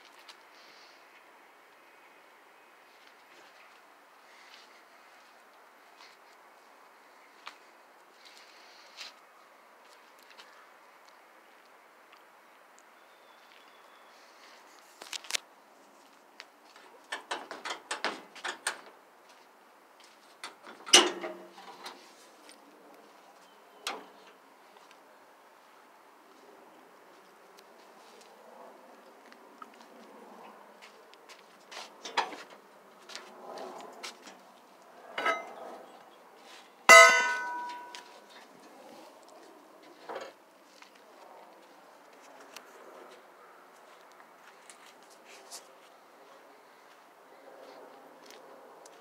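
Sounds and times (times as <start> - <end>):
metal clank ringing: 35.2 - 35.5, 36.9 - 38.1.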